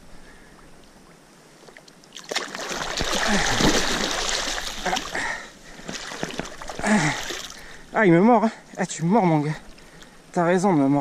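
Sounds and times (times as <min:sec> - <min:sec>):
fish thrashing in shallow water: 0:02.1 - 0:07.6.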